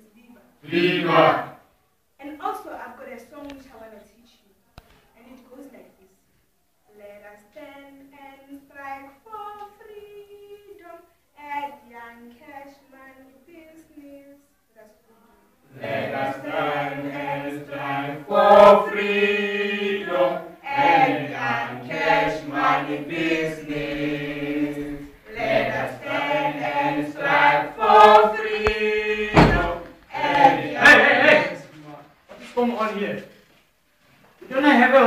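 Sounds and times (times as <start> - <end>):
group singing in unison: 0.6 - 1.6, 15.7 - 31.7
thump: 28.0 - 30.5.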